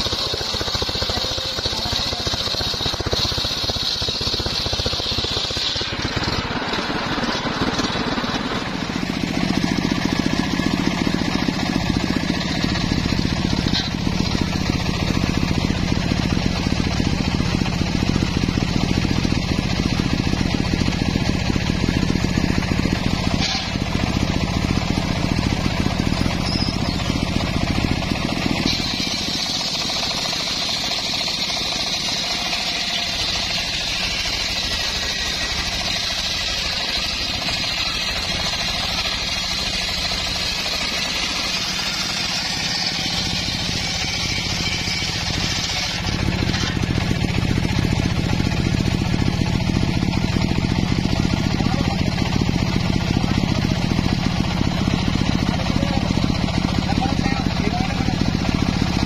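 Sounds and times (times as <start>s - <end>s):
saw blade rasping through wood: 0.0s - 16.1s, 21.6s - 48.2s
saw engine running: 0.0s - 59.0s.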